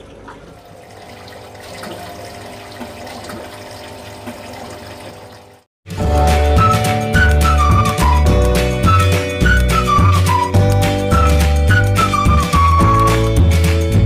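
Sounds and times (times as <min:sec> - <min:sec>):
aquarium filter water bubbling: 0:00.0 - 0:05.7
loud intro music: 0:05.9 - 0:14.0.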